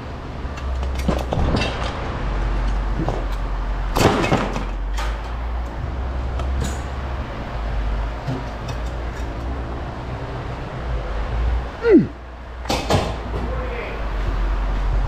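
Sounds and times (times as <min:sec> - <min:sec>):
scrap metal knocking and clattering: 0:00.5 - 0:05.8, 0:08.1 - 0:09.6.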